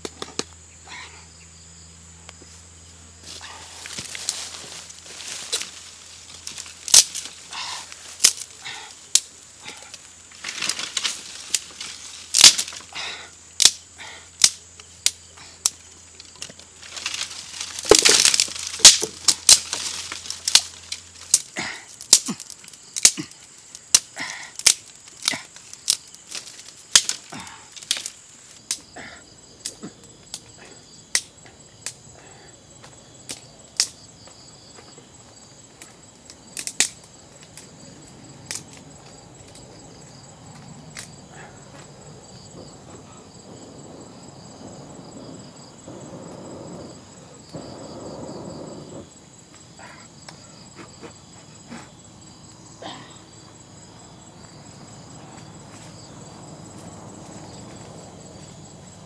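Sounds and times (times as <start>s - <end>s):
crickets chirping: 0.0s - 59.0s
campfire crackling and popping: 3.8s - 13.8s, 14.4s - 28.9s, 35.7s - 39.7s, 43.5s - 49.6s
breath blowing on fire: 44.7s - 49.3s.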